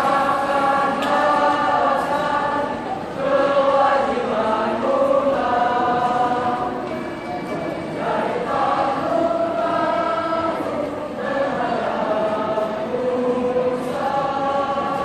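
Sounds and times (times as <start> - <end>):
school choir singing: 0.0 - 15.0.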